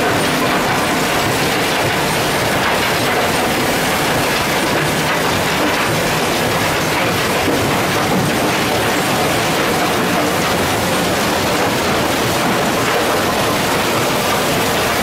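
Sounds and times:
processing machinery din: 0.0s - 15.0s.

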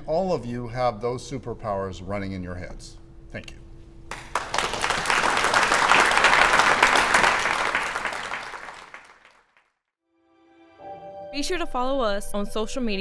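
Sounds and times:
audience applauding: 4.1s - 9.7s.

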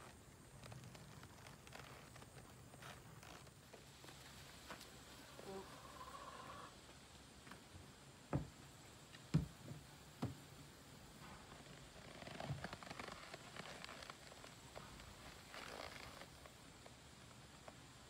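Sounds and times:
saddle clicks and rustling: 0.0s - 4.9s, 8.4s - 18.0s
boots thumping on plastic block: 8.3s - 8.6s, 9.3s - 10.4s.

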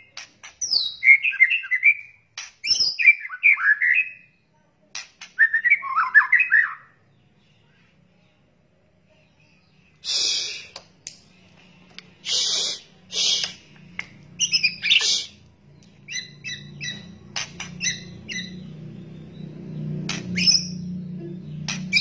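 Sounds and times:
short sharp bird chirps: 12.2s - 13.8s, 14.4s - 15.4s
bird rattle calls: 16.8s - 18.5s.

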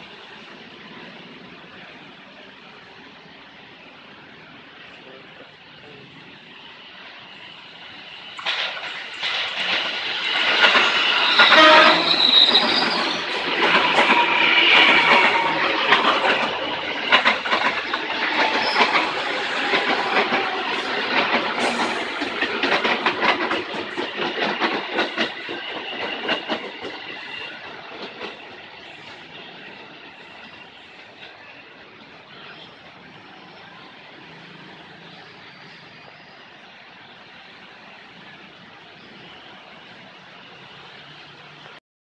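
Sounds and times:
wheels clacking over rail joints: 8.3s - 31.6s
train horn blast: 11.4s - 12.3s.

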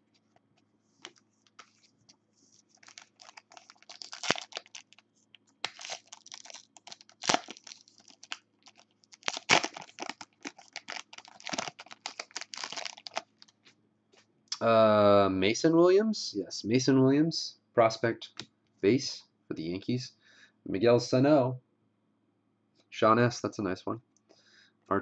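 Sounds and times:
foil wrapper crinkling and tearing: 2.5s - 13.6s.

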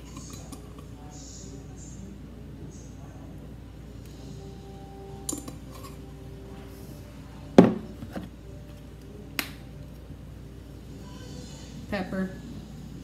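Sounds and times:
containers knocking: 7.6s - 8.3s.

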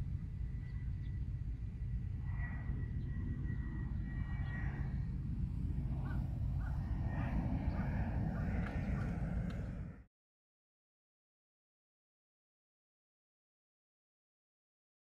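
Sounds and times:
wind rumble on microphone: 0.0s - 10.1s.

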